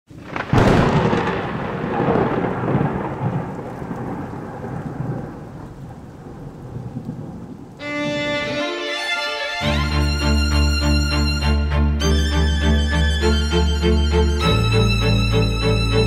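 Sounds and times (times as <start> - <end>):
rolling thunder rumble: 0.1 - 8.6
thunderclap: 0.1 - 8.6.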